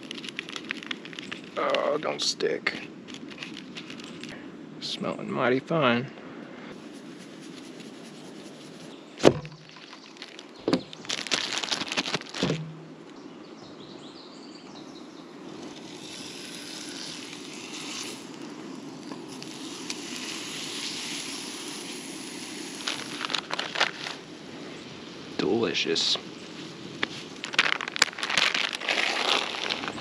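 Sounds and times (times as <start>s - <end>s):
sharp knocks: 9.2s - 9.7s
spray can hiss: 15.8s - 18.4s, 19.3s - 23.2s.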